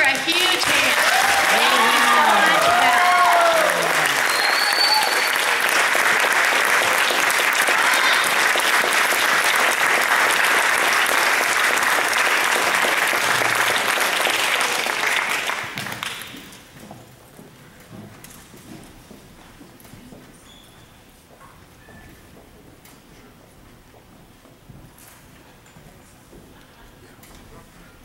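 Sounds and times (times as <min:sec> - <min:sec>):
audience applauding: 0:00.0 - 0:16.7.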